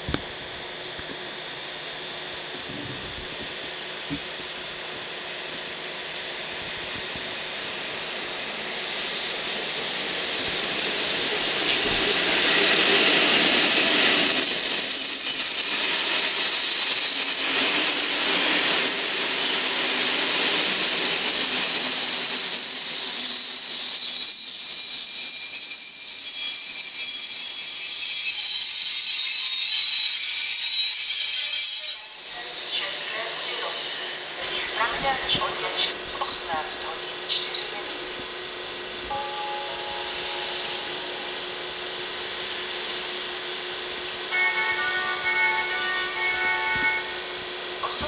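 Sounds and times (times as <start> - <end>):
high-pitched train squeal: 6.0 - 36.0, 39.1 - 42.3, 42.9 - 48.0.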